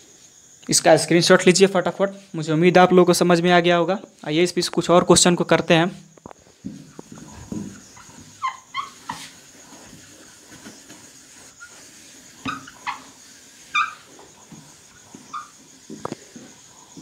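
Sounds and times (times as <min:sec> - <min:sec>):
duster wiping whiteboard: 0:06.6 - 0:17.0
short high squeaks: 0:07.3 - 0:09.4, 0:11.5 - 0:14.3, 0:14.9 - 0:15.6.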